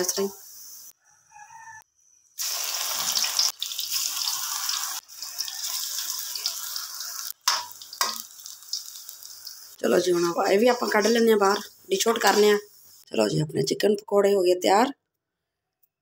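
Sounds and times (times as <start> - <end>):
hot oil sizzling: 0.0 - 0.9, 2.4 - 13.1.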